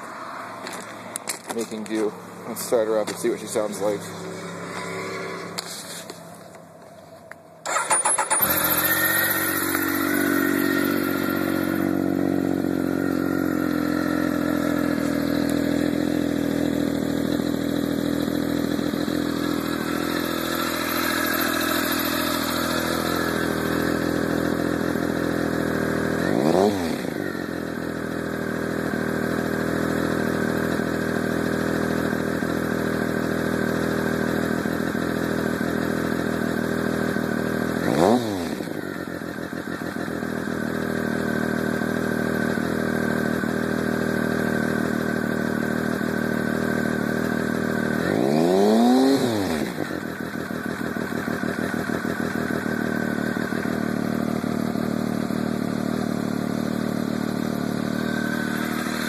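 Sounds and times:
motorcycle engine idling: 0:00.0 - 0:04.8, 0:07.6 - 0:59.0
motorcycle starter cranking: 0:07.6 - 0:11.8
engine throttle blip: 0:07.6 - 0:12.1.

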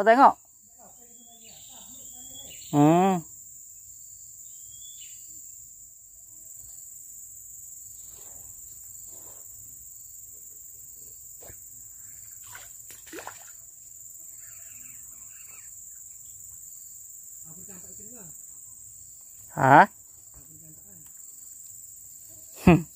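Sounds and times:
insects droning: 0:00.0 - 0:22.9
faint rustles: 0:07.9 - 0:12.3.

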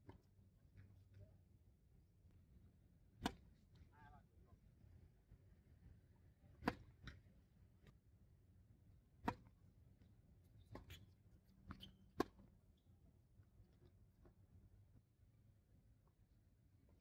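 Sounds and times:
tennis ball struck by racket: 0:03.2 - 0:03.4, 0:09.2 - 0:09.5.

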